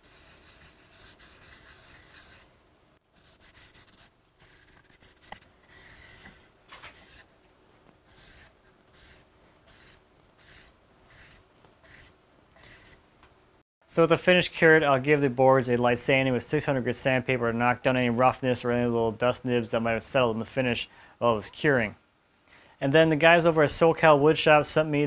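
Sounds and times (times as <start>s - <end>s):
rag rubbing on wood: 8.1s - 13.0s.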